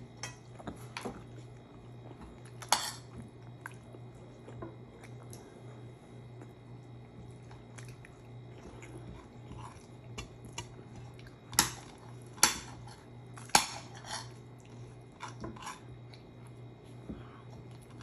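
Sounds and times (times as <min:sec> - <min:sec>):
steady low hum: 0:00.0 - 0:18.0
chewing: 0:00.3 - 0:13.5, 0:14.2 - 0:18.0.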